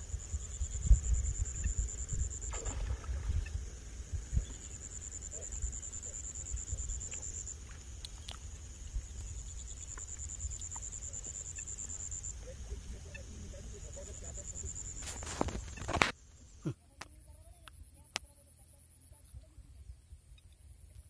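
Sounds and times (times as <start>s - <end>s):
high-pitched insect trill: 0.0s - 16.7s.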